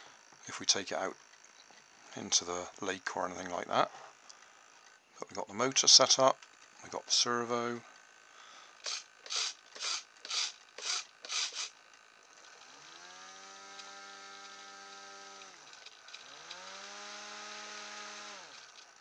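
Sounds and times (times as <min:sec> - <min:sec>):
small motor and propeller whine: 0:07.9 - 0:19.0
servo gear buzzes: 0:08.8 - 0:11.8, 0:12.4 - 0:19.0.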